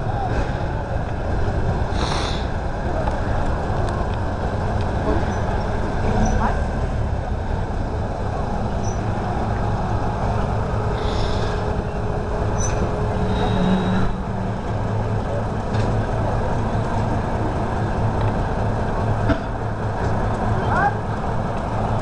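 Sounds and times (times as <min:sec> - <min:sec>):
locomotive engine rumble: 0:00.0 - 0:22.0
faint metallic squeaks: 0:08.8 - 0:09.1, 0:11.0 - 0:14.3.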